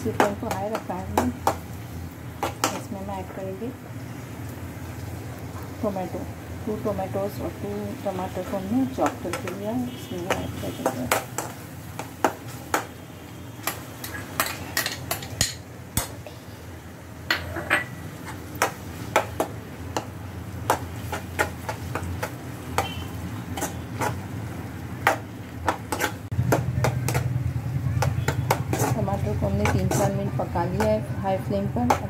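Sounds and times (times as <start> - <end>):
frying sizzle: 0.0 - 32.0
spatula scraping a pan: 20.7 - 24.3, 25.6 - 26.3, 28.0 - 31.1.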